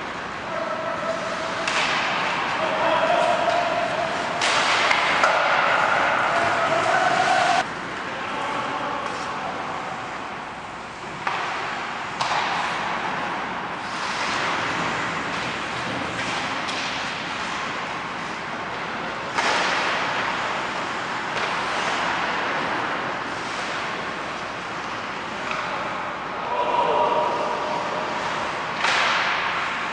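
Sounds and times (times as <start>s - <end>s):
hockey sticks and puck knocking: 1.6s - 7.2s, 11.0s - 17.9s, 18.6s - 25.9s, 28.7s - 29.7s
skate blades scraping ice: 11.4s - 25.8s.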